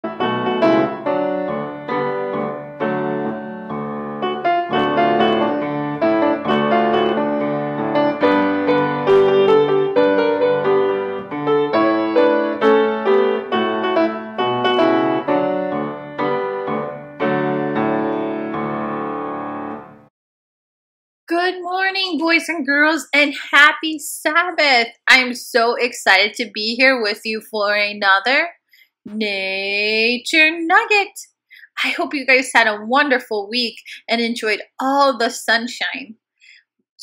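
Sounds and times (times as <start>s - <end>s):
piano music: 0.0s - 20.1s.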